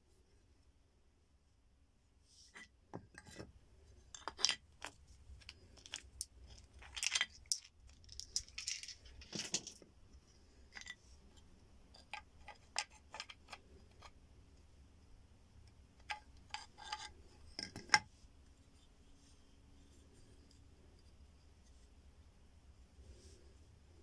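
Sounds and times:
bone pieces clicking: 4.1s - 9.0s, 12.0s - 14.1s.

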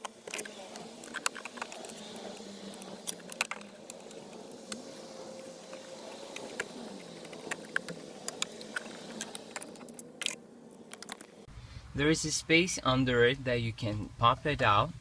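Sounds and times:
screwdriver clicks and scrapes: 0.0s - 4.8s
steady background hum: 0.0s - 15.0s.

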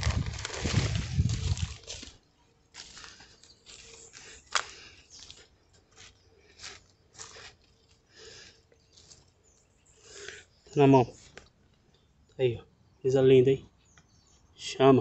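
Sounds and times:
dry leaves crunching: 0.0s - 9.2s.

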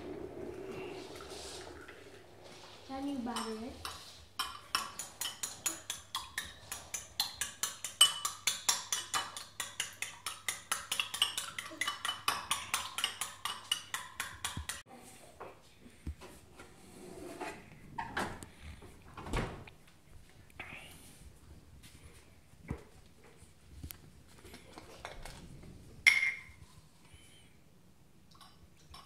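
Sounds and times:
metal spoon beating eggs in bowl: 3.2s - 14.8s.

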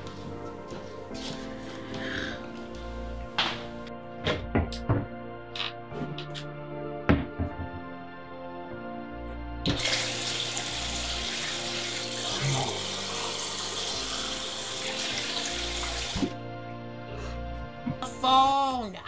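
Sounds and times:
background music: 0.0s - 19.0s
tap running water: 9.6s - 16.4s.

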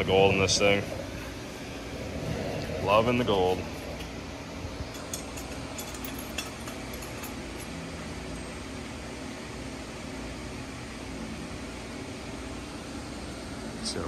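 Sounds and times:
ventilation hum: 0.0s - 14.0s
light metallic clinks: 4.9s - 7.8s.

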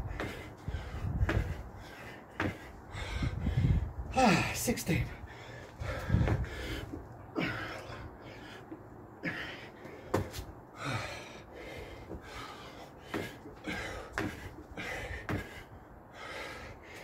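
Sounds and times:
man breathing hard with gasps: 0.0s - 17.0s
trainers thudding on paving: 13.0s - 15.6s.

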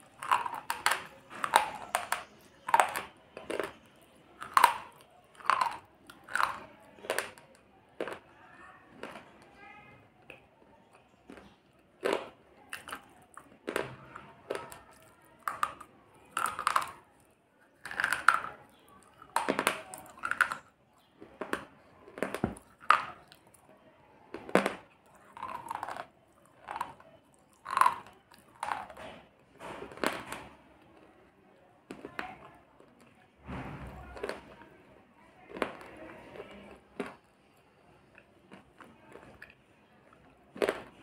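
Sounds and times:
chewing crunches: 0.0s - 9.6s, 10.2s - 31.3s, 31.9s - 34.8s, 35.4s - 41.0s.

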